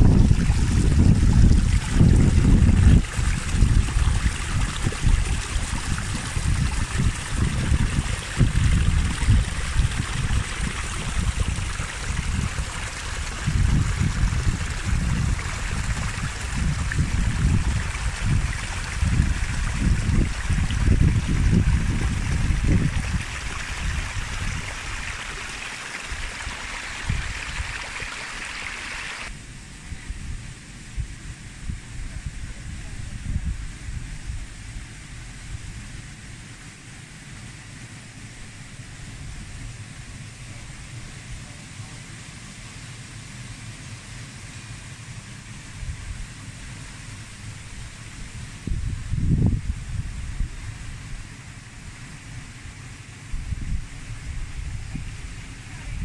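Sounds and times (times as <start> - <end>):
stream splashing over rock: 0.0 - 29.3
low water rumble: 0.0 - 56.0.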